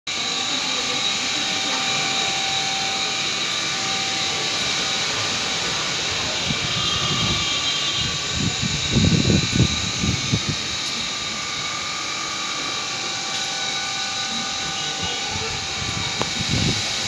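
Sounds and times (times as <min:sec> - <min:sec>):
storm wind rushing through trees: 0:05.1 - 0:12.4, 0:14.2 - 0:17.0
wind gusts hitting microphone: 0:06.1 - 0:10.7, 0:15.0 - 0:17.0.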